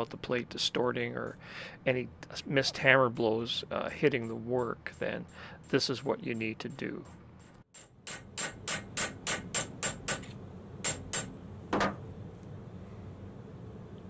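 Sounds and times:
hammer blows on metal: 7.8s - 11.3s
hammer tapping on metal: 7.8s - 12.0s.

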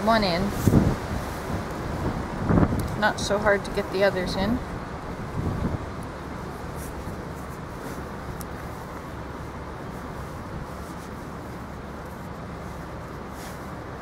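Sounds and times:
distant traffic: 0.0s - 14.0s
wind: 0.0s - 14.0s
twigs ticking: 5.0s - 13.3s.

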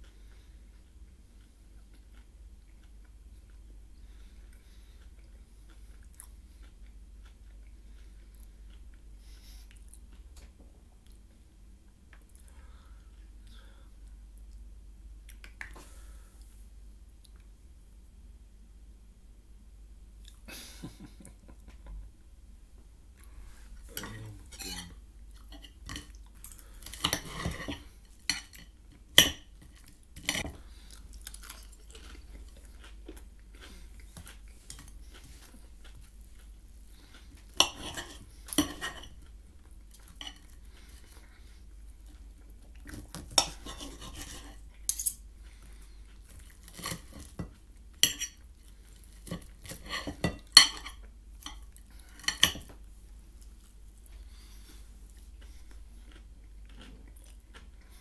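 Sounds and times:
cutlery scraping plate: 23.9s - 26.1s, 26.9s - 29.4s, 37.6s - 39.2s, 43.3s - 45.2s, 46.7s - 48.4s, 49.2s - 51.6s, 52.2s - 52.7s
cutlery clinking on plate: 49.2s - 51.6s.

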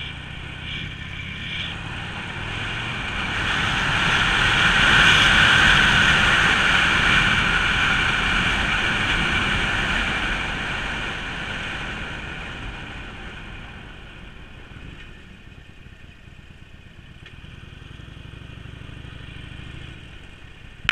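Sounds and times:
wind rushing over microphone: 0.0s - 15.2s
motorcycle engine running: 0.0s - 20.9s.

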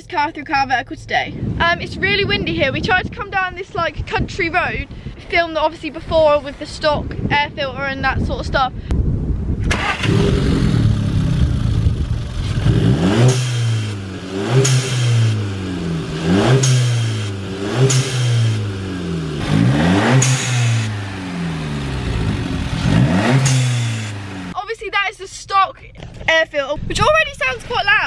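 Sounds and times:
car engine revving: 9.7s - 24.6s.

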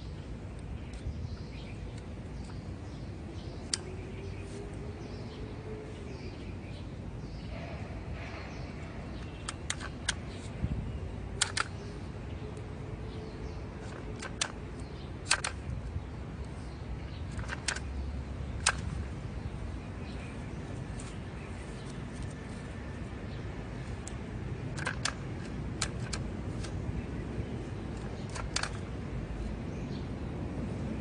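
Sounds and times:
metallic clicks of tying tool: 3.6s - 4.0s, 9.2s - 10.5s, 11.3s - 11.9s, 13.8s - 16.6s, 17.2s - 17.9s, 18.6s - 19.2s, 23.8s - 26.9s, 27.9s - 29.0s.

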